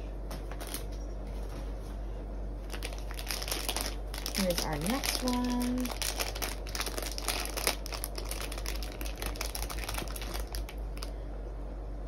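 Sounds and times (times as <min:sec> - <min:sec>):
wrapper crinkling as torn open: 0:02.7 - 0:11.1.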